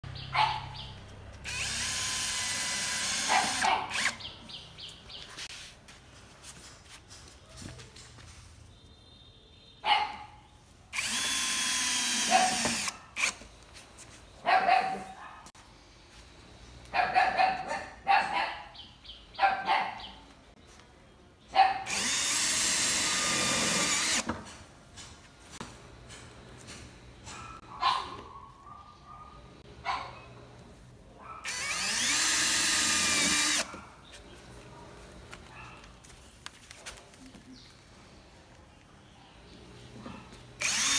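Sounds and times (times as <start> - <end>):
dog barking: 0.3 - 0.8, 3.3 - 4.0, 9.8 - 10.4, 12.3 - 13.1, 14.4 - 15.5, 16.9 - 18.8, 19.4 - 20.2, 21.5 - 21.9, 27.3 - 30.4, 31.2 - 31.5, 35.5 - 35.9
drill driving screws into metal: 1.4 - 4.2, 11.0 - 13.4, 21.9 - 24.3, 31.4 - 33.7, 40.6 - 40.9.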